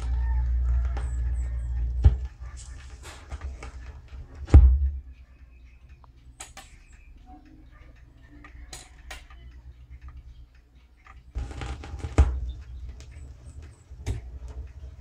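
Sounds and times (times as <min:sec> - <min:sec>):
record groove hiss: 0:00.0 - 0:15.0
record changer mechanical clicks: 0:11.0 - 0:15.0.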